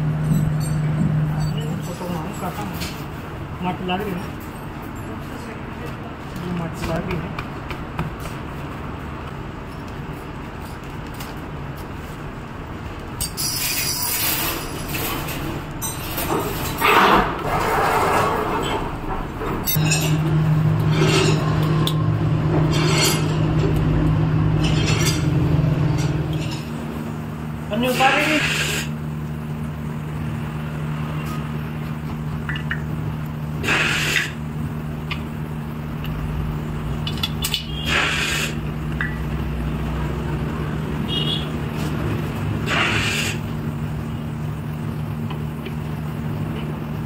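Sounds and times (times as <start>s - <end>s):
low machine hum: 0.0s - 9.3s, 18.3s - 37.9s
short hiss: 37.8s - 38.6s.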